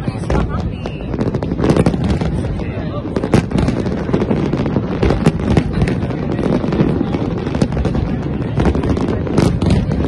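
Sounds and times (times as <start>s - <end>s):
fireworks booms: 0.0s - 10.0s
fireworks sharp cracks: 0.0s - 10.0s.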